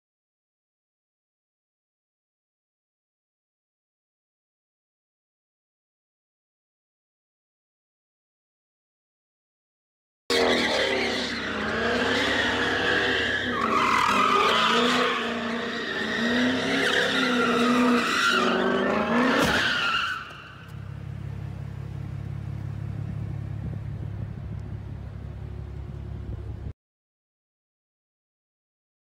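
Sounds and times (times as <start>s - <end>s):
tyres squealing: 10.3s - 20.7s
car engine revving: 10.3s - 26.7s.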